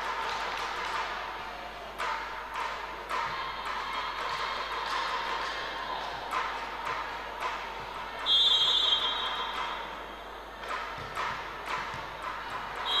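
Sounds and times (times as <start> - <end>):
sharp taps in echoing hall: 2.0 - 13.0
referee's whistle trill: 8.2 - 9.9.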